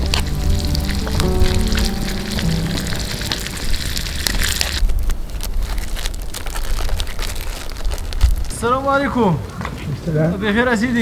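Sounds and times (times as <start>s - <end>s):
steady low rumble: 0.0s - 6.6s
irregular crunching and crackling: 0.0s - 10.1s.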